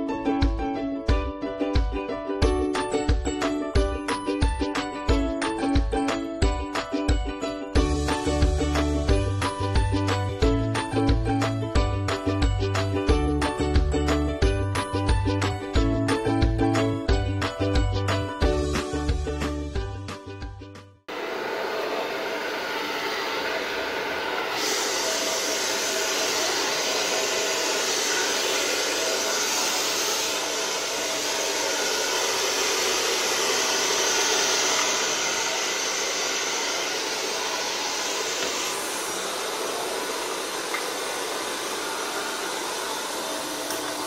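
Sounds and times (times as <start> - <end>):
background music: 0.0 - 21.0
hair dryer blowing: 21.1 - 44.0.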